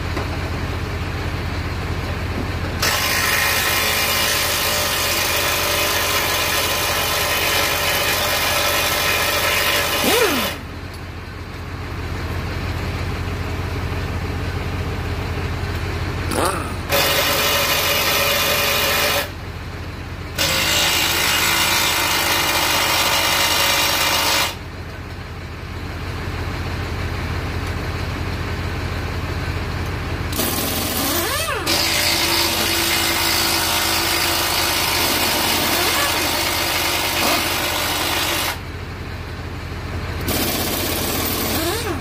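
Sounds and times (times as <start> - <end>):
hand-held power tool bursts: 8.7 - 10.6, 20.4 - 24.6, 30.3 - 38.6, 40.3 - 42.0.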